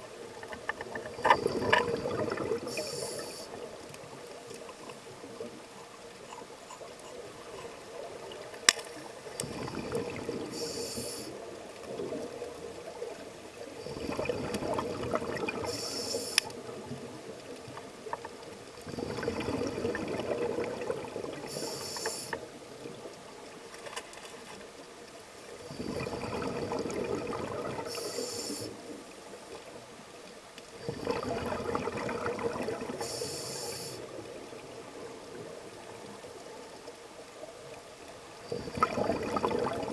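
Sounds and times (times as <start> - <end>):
regulator breathing bubbles: 13.8 - 16.5, 38.5 - 39.9.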